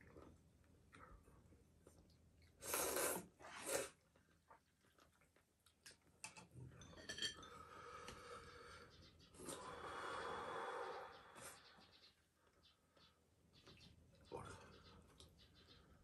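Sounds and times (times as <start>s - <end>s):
person slurping noodles: 2.6s - 4.0s.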